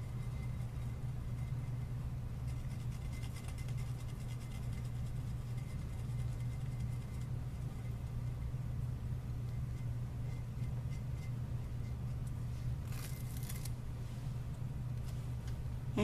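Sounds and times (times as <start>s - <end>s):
marker tapping and scratching ceramic: 0.0s - 8.5s
steady low hum: 0.0s - 16.0s.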